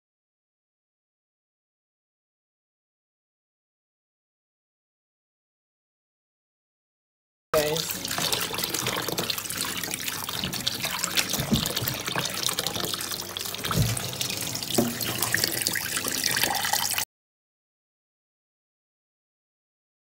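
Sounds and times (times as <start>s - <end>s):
water splashes: 7.6s - 17.0s
tap running into steel bowl: 8.0s - 16.7s.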